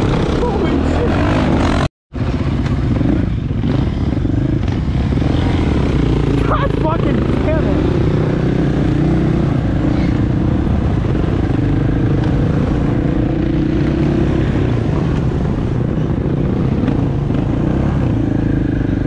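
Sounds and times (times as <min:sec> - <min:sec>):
dirt bike engines running: 0:00.0 - 0:19.0
road and wind noise: 0:00.0 - 0:19.0.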